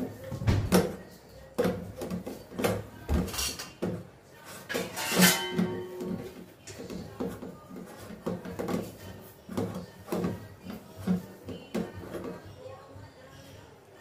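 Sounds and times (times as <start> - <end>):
hand scraping metal bowl: 4.5 - 12.4
metal bowl ringing: 4.9 - 6.0.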